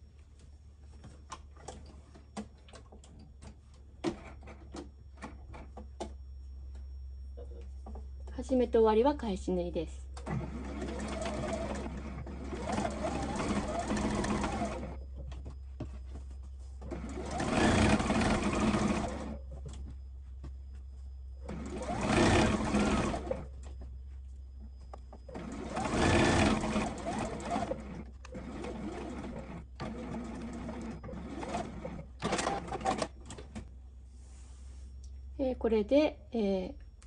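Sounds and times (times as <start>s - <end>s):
electric sewing machine stitching: 10.2s - 15.0s, 16.8s - 19.4s, 21.5s - 23.5s, 25.3s - 33.1s.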